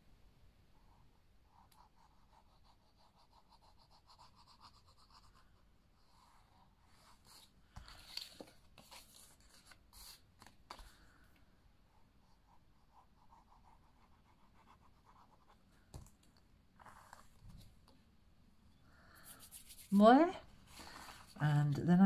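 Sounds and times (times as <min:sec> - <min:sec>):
faint glue scratching: 0:19.2 - 0:21.5.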